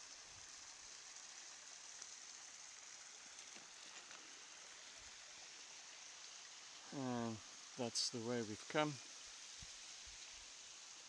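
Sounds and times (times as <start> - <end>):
mountain stream running: 0.0 - 11.0.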